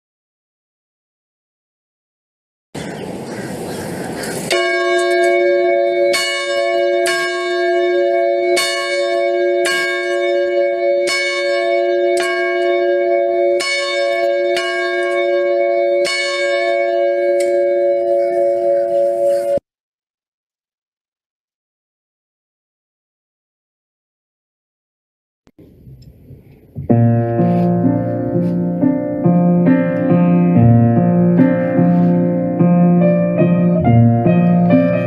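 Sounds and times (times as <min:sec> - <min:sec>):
church bell tolling: 0:04.4 - 0:19.6, 0:26.9 - 0:35.0.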